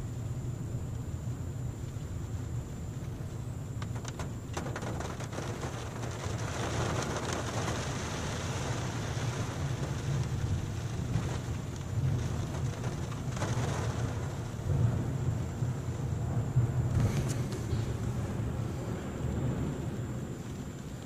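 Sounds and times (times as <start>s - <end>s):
rain on a car: 0.0s - 21.0s
steady low rumble: 0.0s - 21.0s
rain drop ticks: 1.8s - 16.1s, 19.2s - 21.0s.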